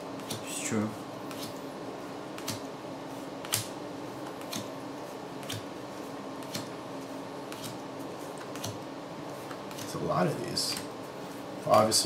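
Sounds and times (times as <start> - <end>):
faint steady hum: 0.0 - 12.0
trading cards snapping: 1.3 - 1.6, 2.3 - 2.7, 3.4 - 4.8, 5.4 - 5.7, 6.4 - 6.8, 7.5 - 8.8.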